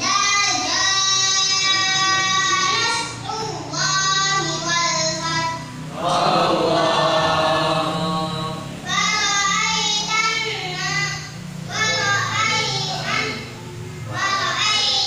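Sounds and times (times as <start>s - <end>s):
boy chanting recitation: 0.0s - 15.0s
choir-like blend of voices: 5.9s - 10.2s.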